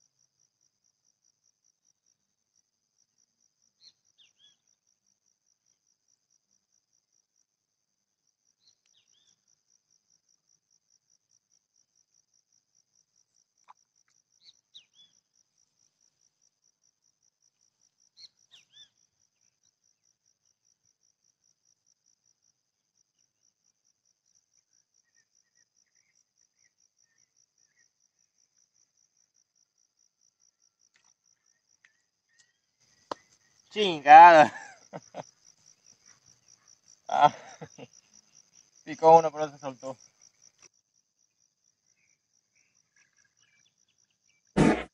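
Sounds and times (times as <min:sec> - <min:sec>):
faint insect chirps: 0:00.0 - 0:44.9
insect trilling: 0:30.8 - 0:40.7.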